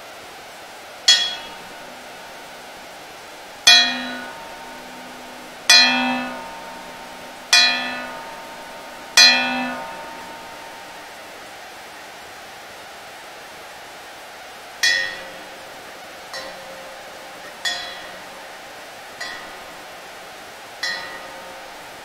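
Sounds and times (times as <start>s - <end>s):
background hiss: 0.0s - 22.0s
bell-like metallic strikes: 1.1s - 11.5s, 14.8s - 20.0s, 20.8s - 22.0s
low hum: 1.1s - 11.6s.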